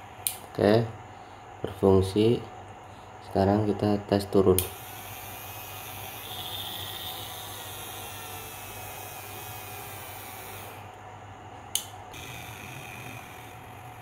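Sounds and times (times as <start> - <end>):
sharp click: 4.6 - 4.8, 11.7 - 12.0
small electric motor whirring: 4.6 - 10.9, 12.1 - 14.0.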